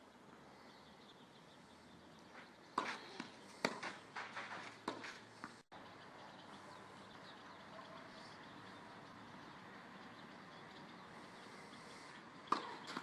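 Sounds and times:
tennis ball hit and bouncing: 2.8 - 5.6, 12.4 - 13.0.

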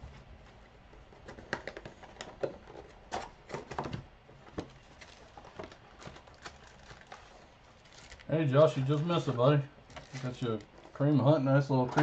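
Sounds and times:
card wrappers being torn open: 5.0 - 9.2, 9.9 - 10.7.

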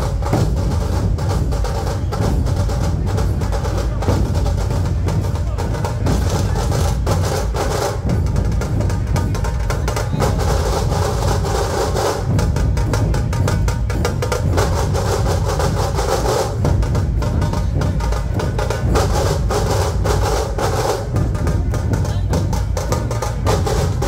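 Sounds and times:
barrel drums heavy beat: 0.0 - 24.0.

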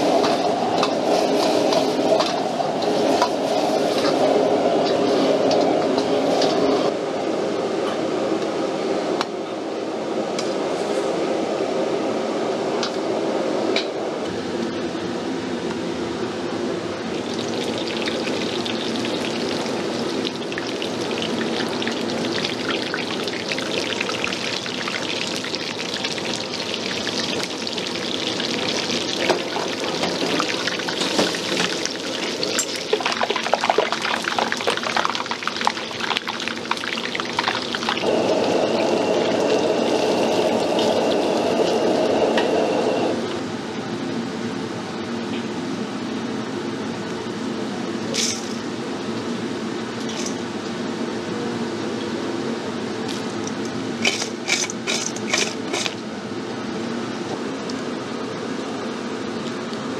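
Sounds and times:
oil sizzling and crackling: 17.1 - 41.5.

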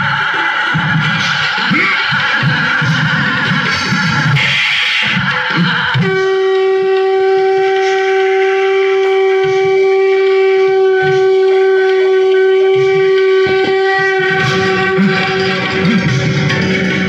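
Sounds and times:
music: 0.0 - 17.0
conch shell blown: 5.0 - 17.0
low drum thumps: 10.7 - 17.0.

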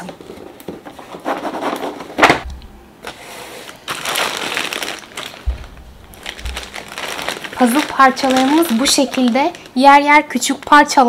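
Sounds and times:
plastic bag crinkling: 3.6 - 11.0
low bumps: 5.3 - 7.6.

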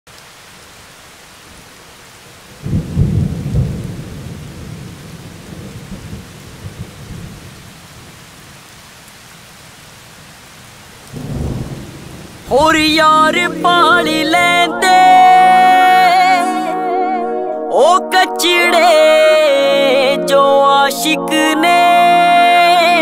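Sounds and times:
steady rain: 0.1 - 14.9
thunder rumbling: 2.6 - 7.8, 11.1 - 13.4.

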